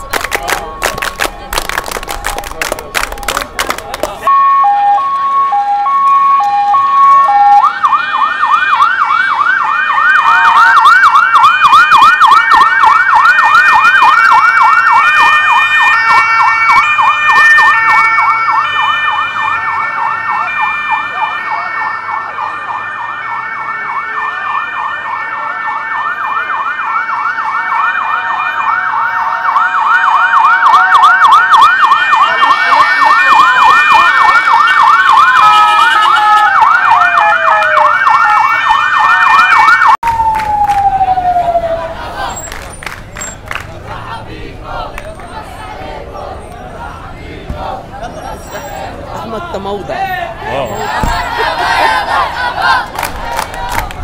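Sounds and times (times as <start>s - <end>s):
electronic siren yelping: 4.3s - 42.6s.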